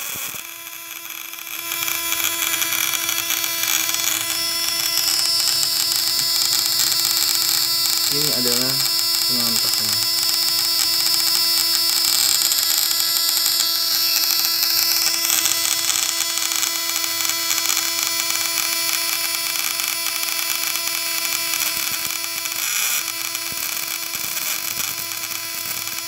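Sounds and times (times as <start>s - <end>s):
high-voltage shocker buzzing: 0.0s - 26.0s
hissing crackle: 1.9s - 17.8s
contact points chattering: 3.6s - 11.4s.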